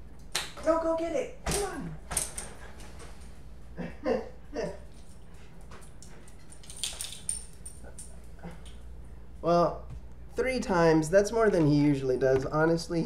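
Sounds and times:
dog claws clicking on tile: 5.7 - 8.8.

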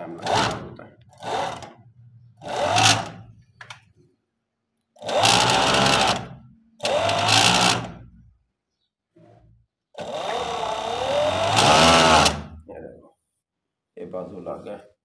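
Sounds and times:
sewing machine running: 0.1 - 1.8, 2.4 - 3.2, 5.0 - 8.0, 10.0 - 12.5.

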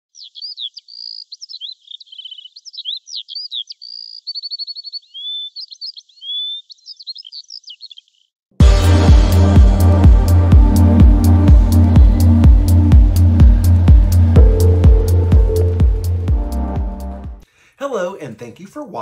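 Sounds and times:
songbird singing: 0.1 - 8.4.

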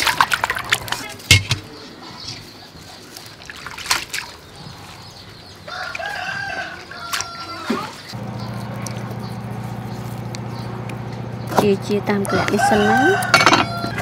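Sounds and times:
rooster crowing: 5.7 - 7.9, 12.2 - 14.0
steady low hum: 8.2 - 12.5.

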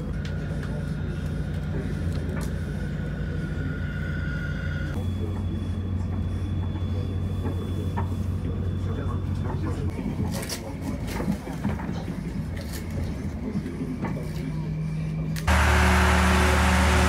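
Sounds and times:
turboprop engines humming: 15.2 - 17.0
high engine whine: 15.4 - 17.0.

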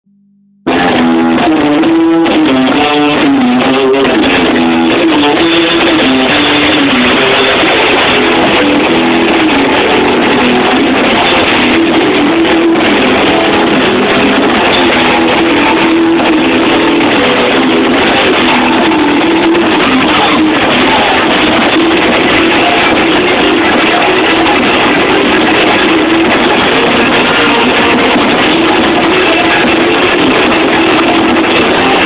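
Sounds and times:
electric guitar melody: 0.6 - 32.0
live rock band playing: 0.7 - 32.0.

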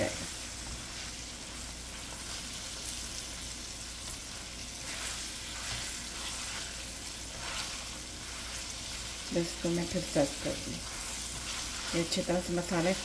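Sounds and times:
food sizzling in oil: 0.0 - 13.0
spatula strokes in wok: 4.0 - 13.0.

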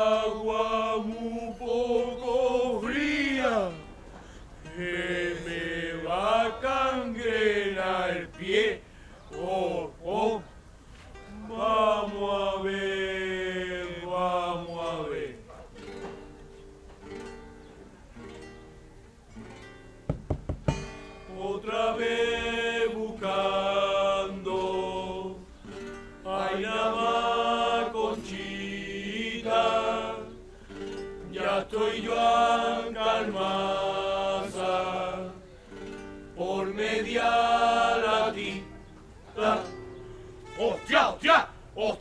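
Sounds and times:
group singing: 0.0 - 3.9, 4.6 - 10.5, 11.3 - 15.6, 21.3 - 30.5, 31.1 - 40.1
acoustic guitar: 0.0 - 42.0.

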